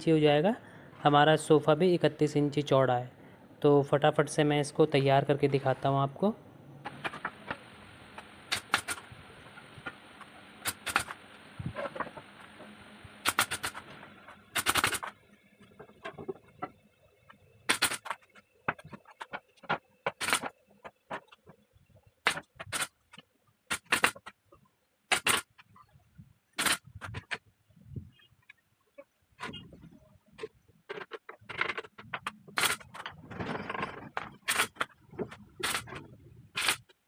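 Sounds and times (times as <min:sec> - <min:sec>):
nail gun firing: 0:08.5 - 0:09.0, 0:10.6 - 0:11.2, 0:13.2 - 0:13.8, 0:14.5 - 0:15.1, 0:17.7 - 0:18.1, 0:20.1 - 0:20.5, 0:22.2 - 0:23.0, 0:23.7 - 0:24.3, 0:25.1 - 0:25.5, 0:26.6 - 0:26.9, 0:32.6 - 0:32.9, 0:34.4 - 0:34.8, 0:35.6 - 0:35.9, 0:36.6 - 0:36.9.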